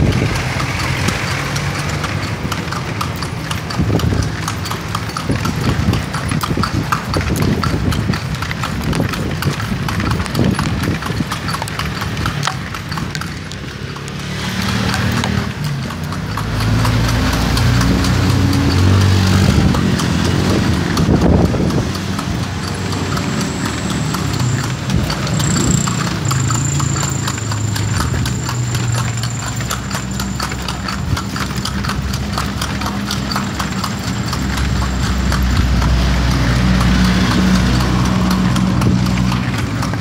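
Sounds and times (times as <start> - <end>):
horse hooves clip-clopping on asphalt: 0.0 - 40.0
low engine hum: 31.0 - 40.0.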